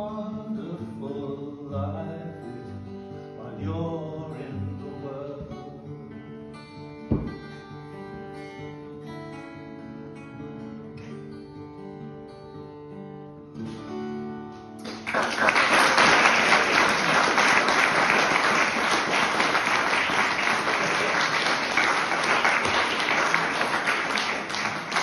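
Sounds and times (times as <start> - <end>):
acoustic guitar chords: 0.0 - 15.0
audience applause: 14.8 - 25.0.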